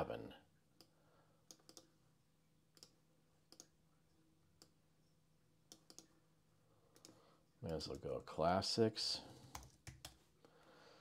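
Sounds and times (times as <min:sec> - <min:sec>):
computer mouse clicks: 0:01.5 - 0:01.9, 0:02.8 - 0:03.7, 0:05.7 - 0:06.1, 0:06.9 - 0:07.2, 0:09.5 - 0:10.2.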